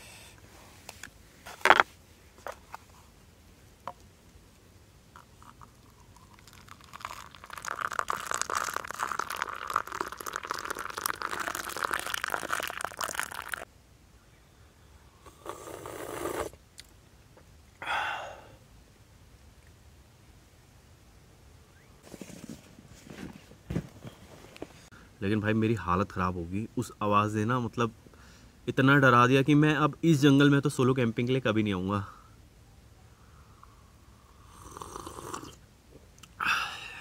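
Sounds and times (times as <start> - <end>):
person sipping: 5.2 - 13.6, 15.2 - 16.6, 33.6 - 35.6
coffee pouring into a cup: 5.4 - 13.7.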